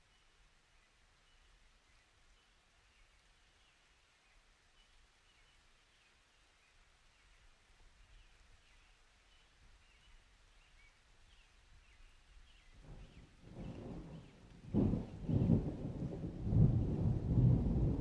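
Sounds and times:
faint birds chirping: 0:00.0 - 0:17.2
low rumble of thunder: 0:12.8 - 0:18.0.

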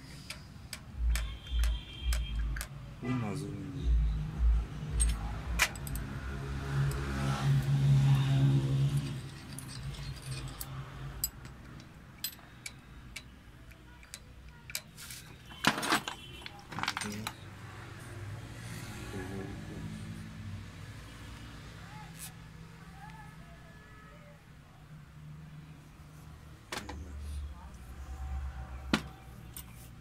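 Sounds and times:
metal tools clattering: 0:04.9 - 0:06.2, 0:08.8 - 0:13.4, 0:14.0 - 0:17.4
small metal parts clinking: 0:04.9 - 0:06.2, 0:08.8 - 0:17.4.

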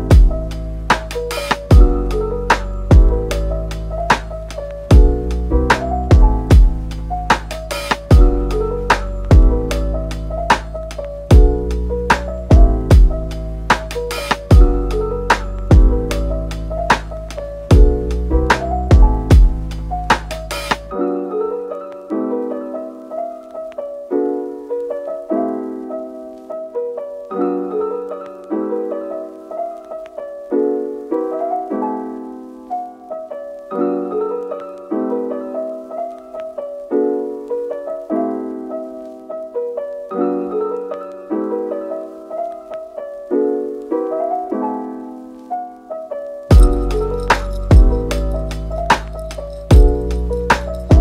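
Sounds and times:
repeating piano phrase: 0:00.0 - 0:51.0.

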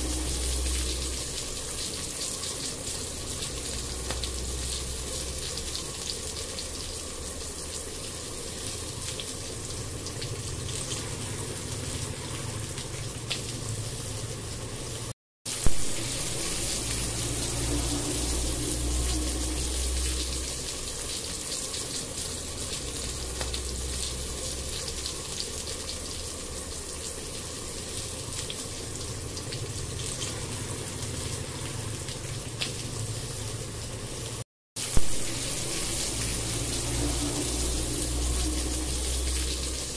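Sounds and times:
low steady hum: 0:00.0 - 0:06.7, 0:15.6 - 0:21.6, 0:35.0 - 0:39.9
food sizzling in hot oil: 0:00.0 - 0:39.9.

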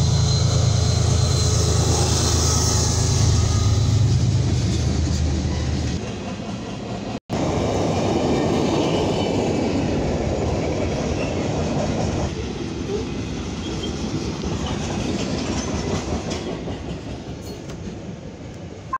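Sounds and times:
diesel locomotive droning: 0:00.0 - 0:18.9
freight train cars rumbling: 0:00.0 - 0:18.9
wheels clacking over rail joints: 0:09.3 - 0:18.2.

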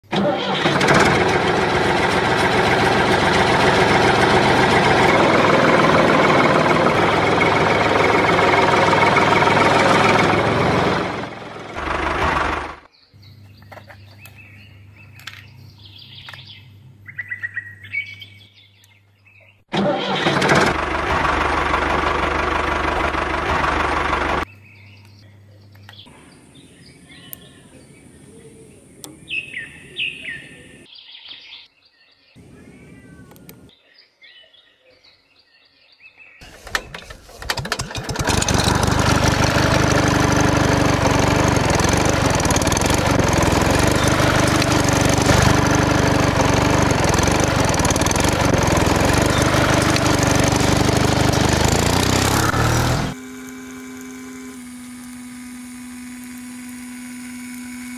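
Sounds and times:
engine running loudly: 0:00.1 - 0:12.9, 0:19.8 - 0:24.5, 0:37.5 - 0:57.9
birds chirping: 0:12.8 - 0:19.7, 0:24.4 - 0:36.6, 0:39.9 - 0:53.2.

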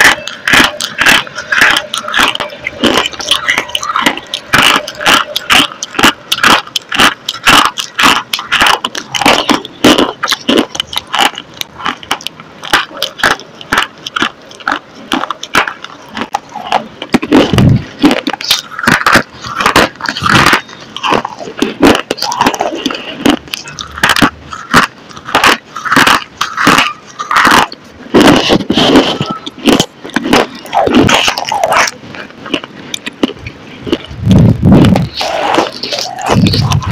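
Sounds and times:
crisp crunching and chewing: 0:00.0 - 0:36.9
wet mouth sounds: 0:00.0 - 0:36.9.

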